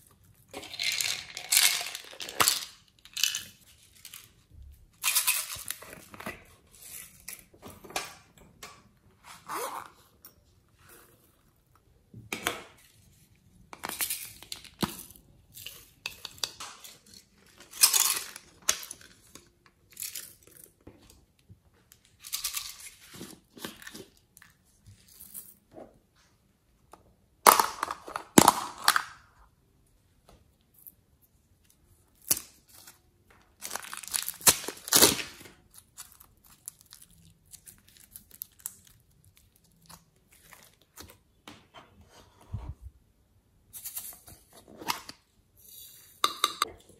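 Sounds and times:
plastic containers crinkling: 0.1s - 4.4s, 33.5s - 41.3s.

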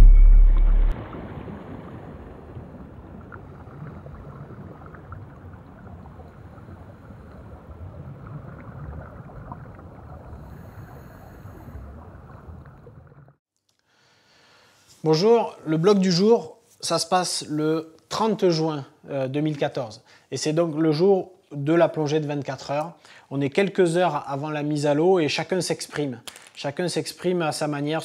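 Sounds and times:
deep boom: 0.0s - 3.6s
low rumbling noise: 0.0s - 13.3s.

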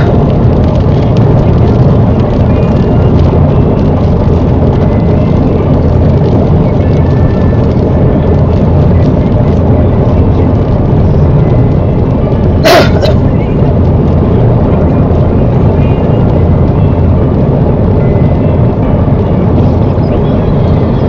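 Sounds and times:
car engine drone: 0.0s - 21.0s
tyres on wet road: 0.0s - 21.0s.

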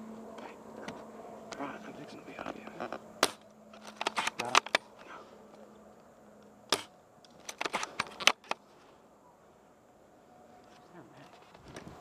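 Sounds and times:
rifle handling clicks and knocks: 2.4s - 5.6s, 6.7s - 8.6s.

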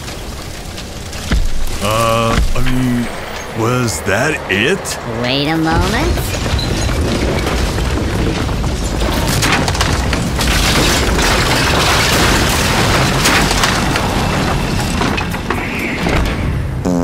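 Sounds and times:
crackling debris: 0.0s - 5.1s, 5.8s - 16.7s
rumbling demolition blast: 5.5s - 16.8s.

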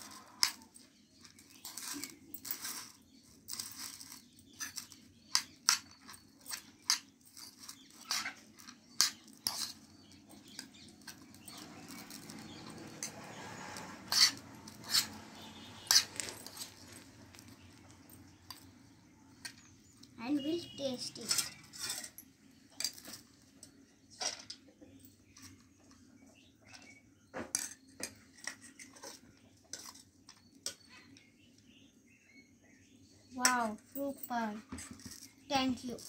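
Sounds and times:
spoon scraping bowl: 7.7s - 17.9s.

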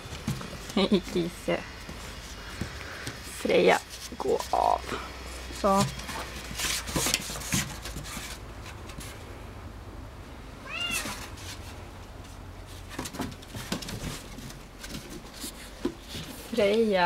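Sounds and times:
cat meowing: 10.6s - 11.2s.

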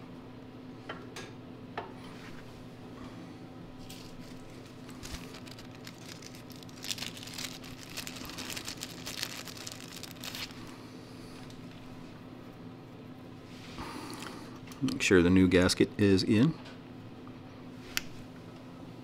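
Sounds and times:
steady low hum: 0.0s - 19.0s
plastic bag crinkling: 3.8s - 10.8s.

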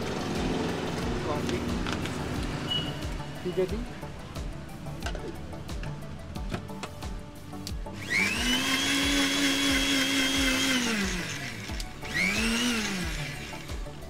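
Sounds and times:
mixer grinder motor whining: 0.0s - 3.2s, 7.9s - 14.0s.

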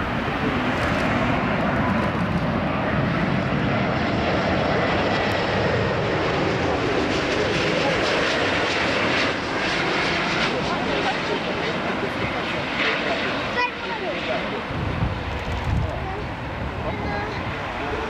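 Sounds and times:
jet engine roar: 0.0s - 18.0s.

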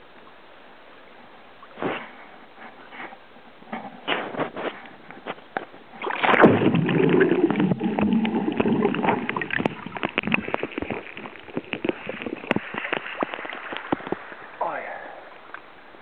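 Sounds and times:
water sloshing and splashing: 1.6s - 14.6s
water lapping: 1.6s - 16.0s
muffled underwater rush: 5.8s - 16.0s.

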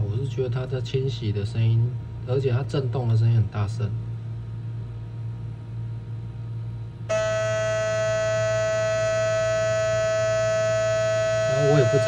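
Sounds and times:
cleaning station low hum: 7.1s - 12.0s
shaver buzzing: 7.1s - 12.0s.

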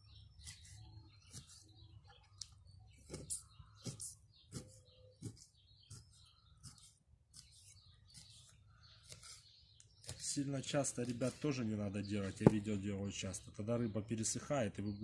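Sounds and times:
knife scratching through fish scales: 3.1s - 11.6s.

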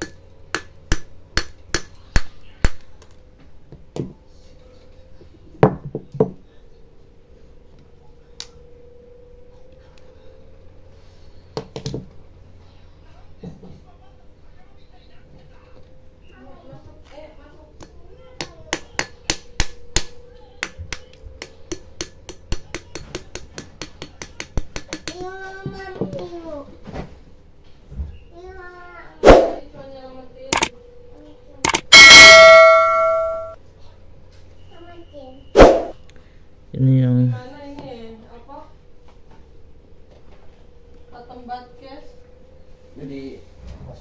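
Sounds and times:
metal taps and clicks: 31.7s - 32.1s.

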